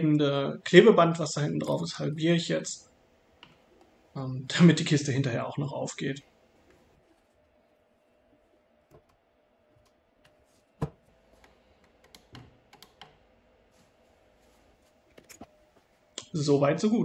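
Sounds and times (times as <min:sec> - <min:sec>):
small clicks and taps: 0:11.4 - 0:13.2.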